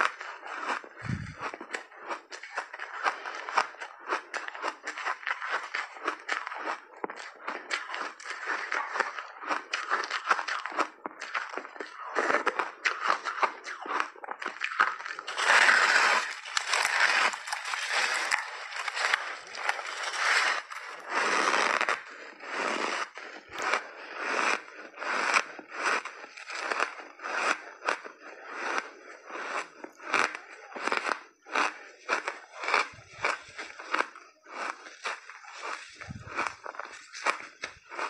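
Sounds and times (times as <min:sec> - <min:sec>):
person crunching ice: 0:00.0 - 0:38.0.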